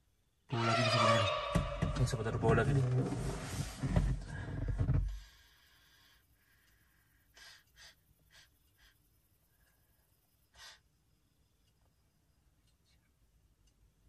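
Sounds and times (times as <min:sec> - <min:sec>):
man breathing softly: 0:04.2 - 0:11.0.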